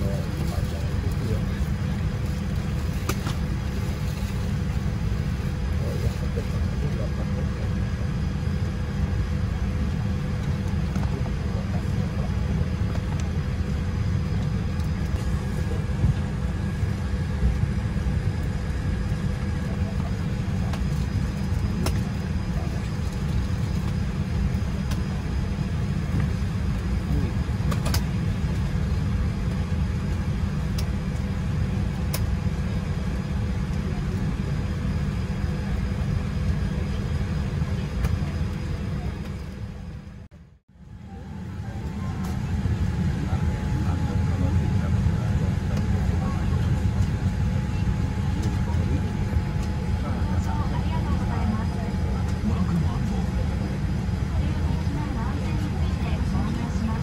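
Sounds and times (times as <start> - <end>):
airliner cabin rumble: 0.0 - 57.0.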